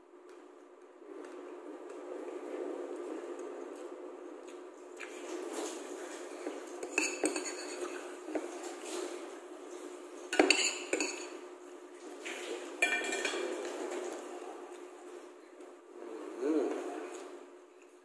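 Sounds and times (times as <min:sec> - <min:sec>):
metal spoon scraping ceramic plate: 0:06.8 - 0:08.0.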